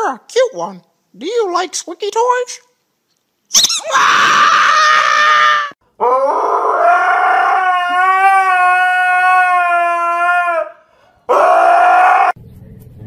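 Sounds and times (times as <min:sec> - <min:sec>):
dog howling: 0:03.8 - 0:12.4.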